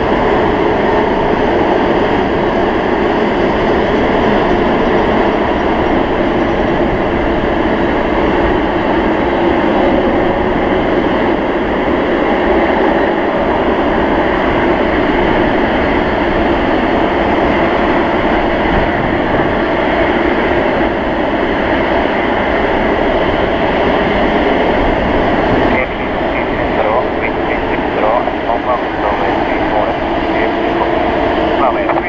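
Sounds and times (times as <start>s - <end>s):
jet engines running: 0.0s - 32.0s.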